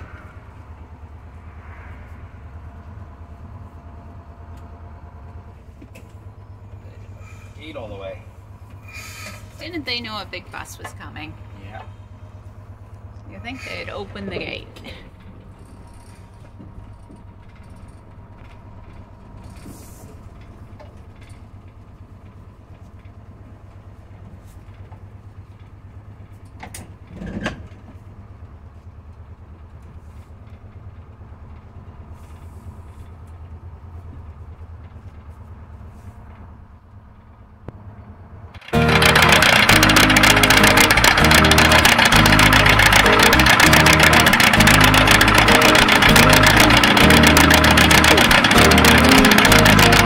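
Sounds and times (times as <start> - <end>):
bus diesel engine running: 0.0 - 50.0
bus body rattles: 13.9 - 50.0.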